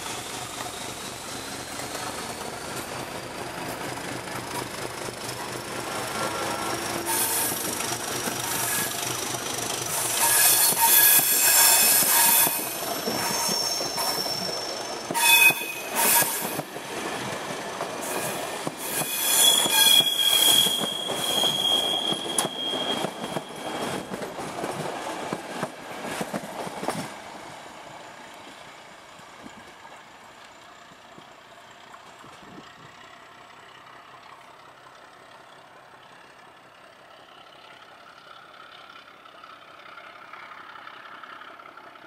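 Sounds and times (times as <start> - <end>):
train coaches rolling past: 0.0 - 42.0
high wheel squeal: 6.1 - 16.8, 18.0 - 24.2.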